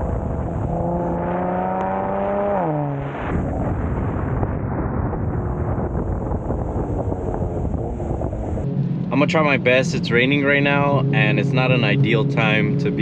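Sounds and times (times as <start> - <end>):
car engine revving: 0.0 - 4.4, 6.4 - 13.0
road noise: 0.0 - 13.0
rough exhaust rumble with crackling: 0.0 - 13.0.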